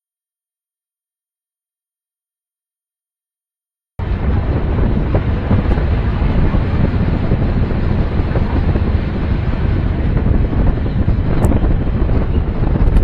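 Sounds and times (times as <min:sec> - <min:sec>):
wind buffeting microphone: 0:04.0 - 0:13.0.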